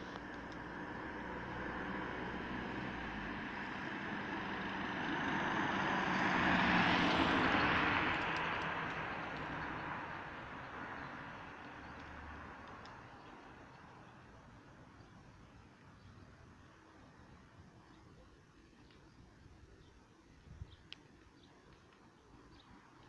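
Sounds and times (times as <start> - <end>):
car driving past: 0.6 - 12.6.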